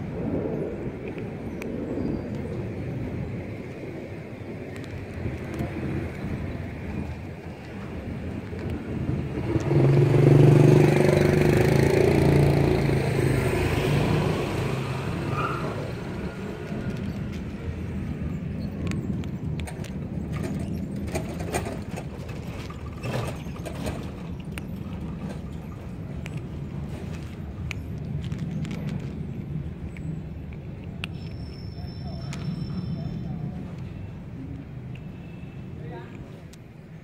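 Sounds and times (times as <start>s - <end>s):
vehicle engine passing: 8.9s - 24.2s
cat crunching dry kibble: 16.7s - 20.3s, 24.2s - 31.5s.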